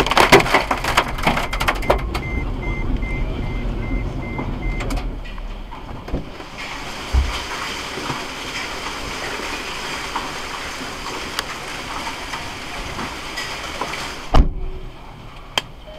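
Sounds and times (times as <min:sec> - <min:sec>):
hail and rain on roof: 0:00.0 - 0:02.2, 0:06.3 - 0:14.3.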